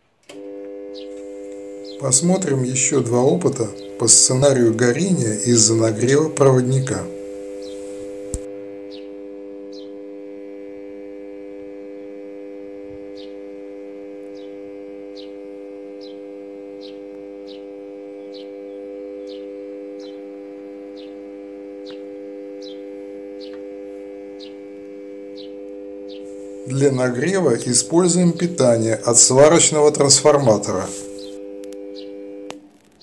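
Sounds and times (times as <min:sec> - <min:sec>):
welding transformer humming: 0:00.0 - 0:33.0
bird chirping: 0:07.6 - 0:08.0, 0:08.9 - 0:09.1, 0:09.7 - 0:09.9, 0:13.2 - 0:13.4, 0:14.3 - 0:15.4, 0:16.0 - 0:16.2, 0:16.8 - 0:20.2, 0:20.9 - 0:21.2, 0:21.8 - 0:22.8, 0:23.4 - 0:23.6, 0:24.4 - 0:24.6, 0:25.3 - 0:26.4
click: 0:08.3 - 0:08.5, 0:31.2 - 0:31.8.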